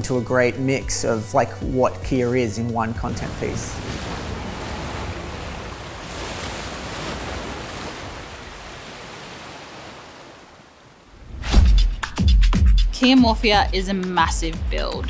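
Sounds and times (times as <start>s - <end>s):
waves crashing: 2.8s - 11.8s.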